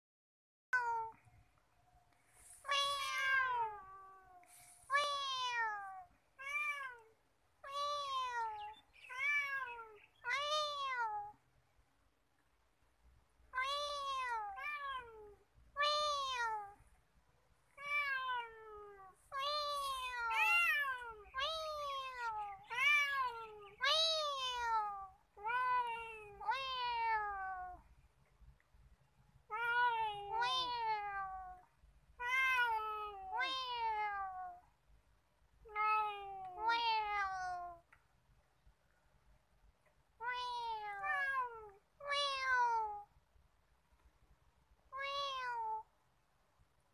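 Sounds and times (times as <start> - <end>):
cat meowing: 2.6 - 11.4, 13.5 - 16.8, 17.8 - 27.8, 29.5 - 34.6, 35.6 - 37.8, 40.2 - 43.1, 45.0 - 45.9.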